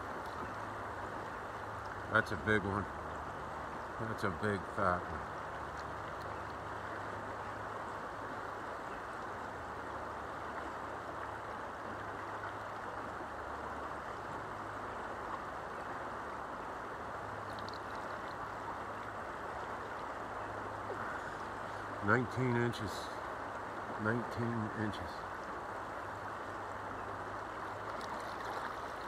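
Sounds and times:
creek water flowing: 0.0 - 29.0.

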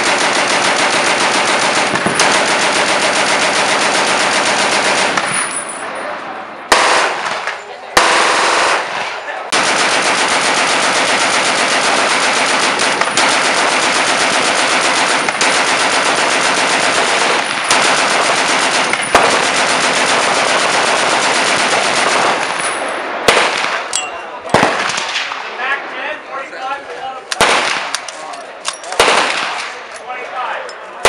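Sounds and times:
machine gun firing burst: 0.0 - 5.3, 8.0 - 22.6.

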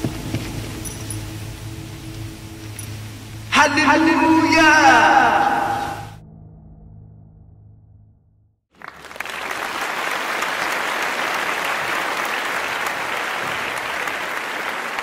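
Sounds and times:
low sustained musical tone: 0.0 - 8.0
crowd applauding: 8.7 - 15.0.

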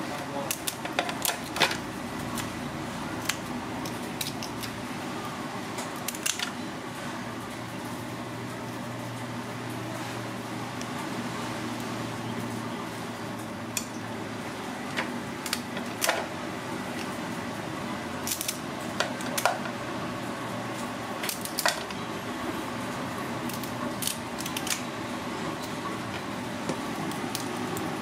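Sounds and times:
steady background hum: 0.0 - 28.0
scissors cracking crab shell: 0.4 - 2.5, 3.2 - 4.8, 6.0 - 6.5, 15.4 - 16.2, 18.2 - 19.7, 21.2 - 21.9, 23.4 - 24.9, 27.1 - 27.9.

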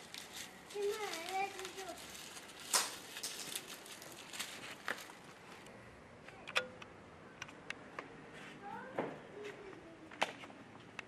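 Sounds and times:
dry garlic rustling and crackling: 0.0 - 5.7.

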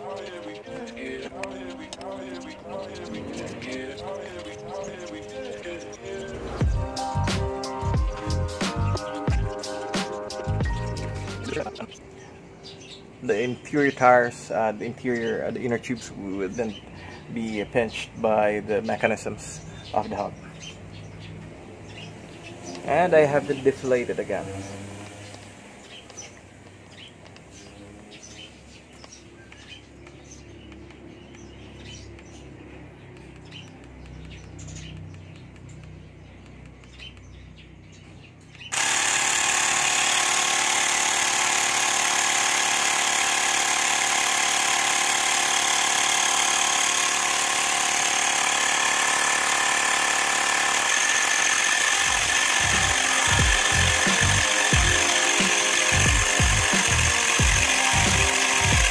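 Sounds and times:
electric air pump running: 6.1 - 12.0, 38.7 - 58.9
low pulsing: 6.4 - 9.6, 52.0 - 55.2, 55.9 - 58.9.

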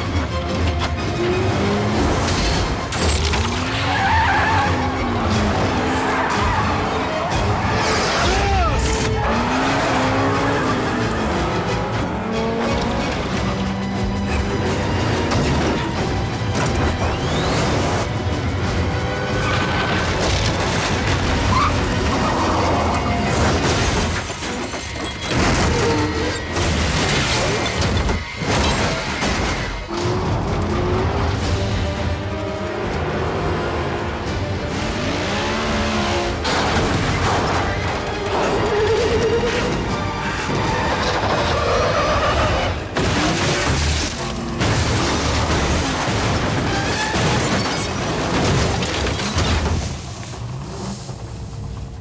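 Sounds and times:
action film music: 0.0 - 52.0
cars crashing through wood: 0.8 - 11.5, 14.3 - 52.0
smashing metal and debris: 2.0 - 4.0, 19.9 - 30.0, 42.8 - 51.1.

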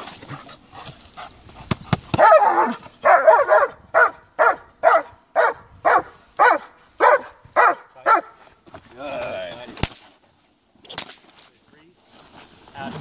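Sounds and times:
dog barking: 2.2 - 8.4.

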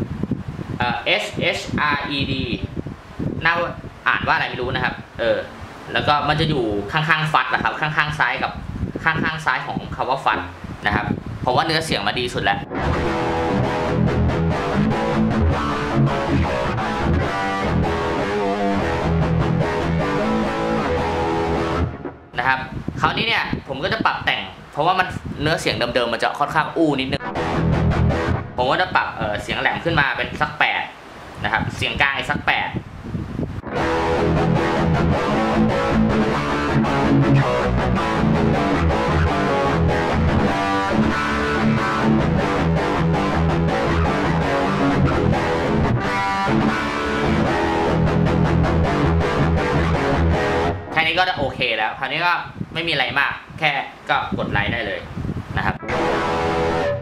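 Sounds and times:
distorted electric guitar riff: 12.5 - 22.8, 27.1 - 30.4, 33.6 - 51.5, 55.7 - 57.0.

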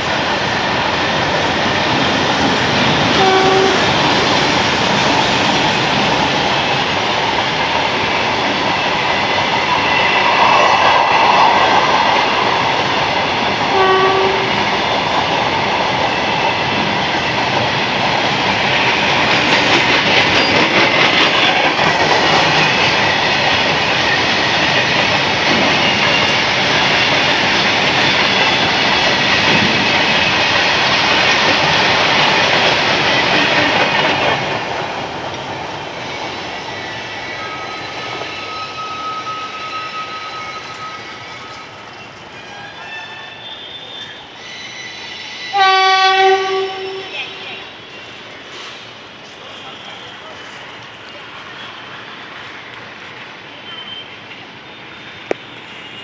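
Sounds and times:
train wheels rumbling on rails: 0.0 - 56.0
clickety-clack over rail joints: 11.4 - 36.3
high wheel squeal: 36.0 - 46.8, 53.5 - 56.0
brief tone: 37.4 - 41.7, 53.6 - 54.2.

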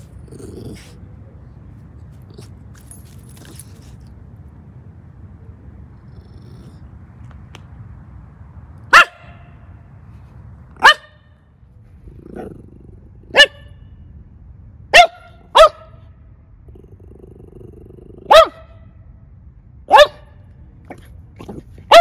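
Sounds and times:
dog barking: 8.9 - 9.5, 10.8 - 11.2, 13.3 - 13.8, 14.9 - 16.0, 18.2 - 18.8, 19.9 - 21.0.

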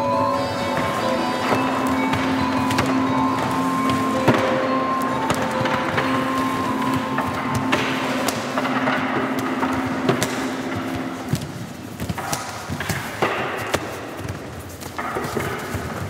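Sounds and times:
held instrumental note: 0.0 - 12.1
percussive knocks and thuds: 0.7 - 16.0.

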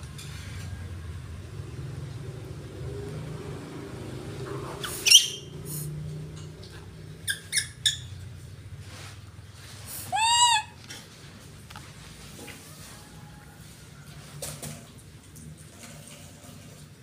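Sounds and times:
monkey sharp calls: 4.8 - 5.5, 10.0 - 10.8
monkey squealing: 4.8 - 5.5, 7.2 - 8.2, 10.0 - 10.8.

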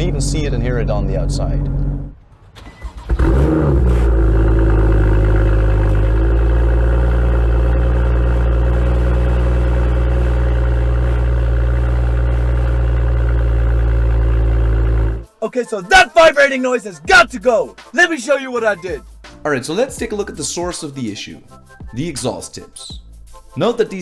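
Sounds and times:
metallic exhaust buzz: 0.0 - 2.2, 3.1 - 15.2
car engine cold start and idle: 0.0 - 15.3.

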